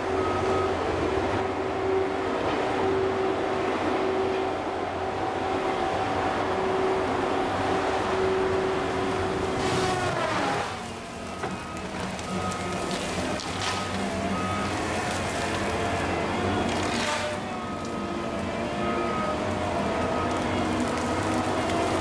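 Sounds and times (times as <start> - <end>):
diesel engine running: 0.0 - 22.0
tree cracking: 9.6 - 18.0, 19.8 - 22.0.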